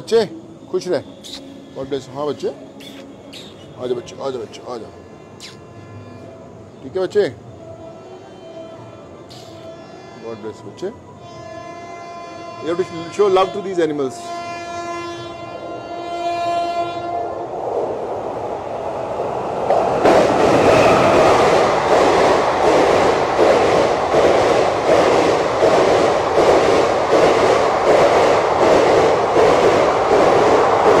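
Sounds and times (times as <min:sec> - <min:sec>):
train horn: 0:01.0 - 0:17.5
train rushing past: 0:12.6 - 0:31.0.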